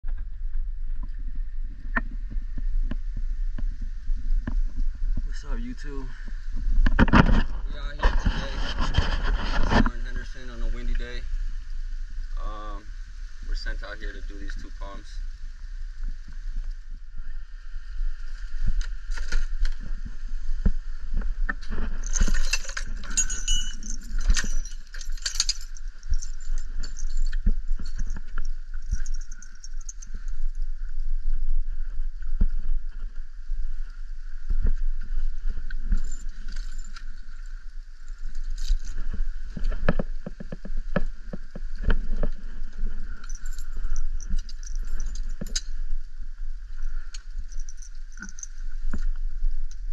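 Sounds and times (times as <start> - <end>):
metal buckles clinking and rattling: 21.7 - 30.7, 35.1 - 46.0, 46.8 - 49.2.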